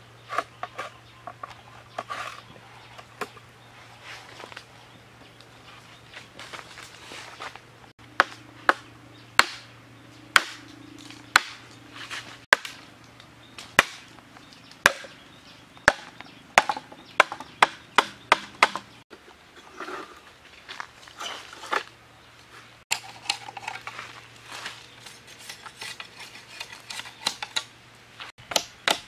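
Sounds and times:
machete chopping bamboo: 8.1 - 9.7, 10.3 - 11.7, 12.5 - 12.9, 13.6 - 14.1, 14.8 - 15.2, 15.8 - 18.9, 28.4 - 29.0.

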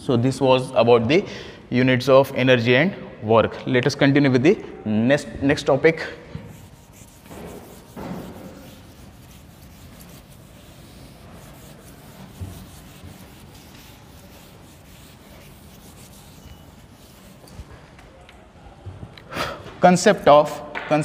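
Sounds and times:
eraser scrubbing a chalkboard: 6.4 - 17.8.

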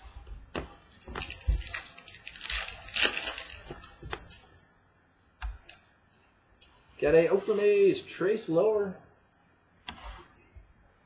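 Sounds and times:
card pack wrapper crinkling: 0.9 - 4.4.

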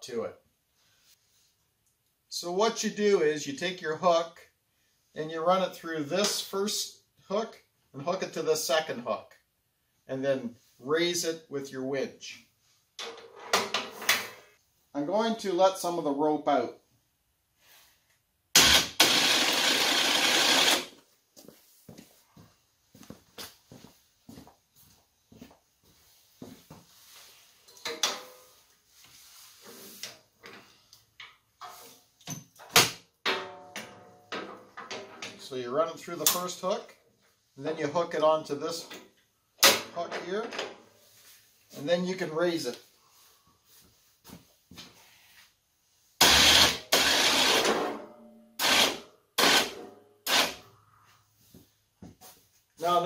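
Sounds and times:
electric winch running: 18.6 - 21.0, 46.2 - 47.7, 48.6 - 49.7.

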